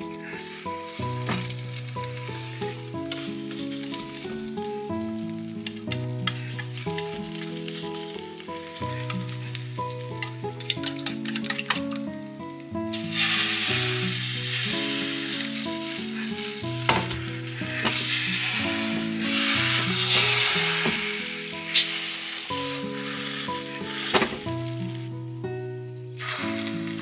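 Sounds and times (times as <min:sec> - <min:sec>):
egg sizzling in frying pan: 0:00.0 - 0:12.2, 0:12.8 - 0:25.3, 0:26.1 - 0:27.0
chopsticks clicking against pan: 0:05.6 - 0:07.1, 0:10.2 - 0:12.1
egg poured into hot pan: 0:05.7 - 0:11.9, 0:12.9 - 0:24.8, 0:26.2 - 0:27.0.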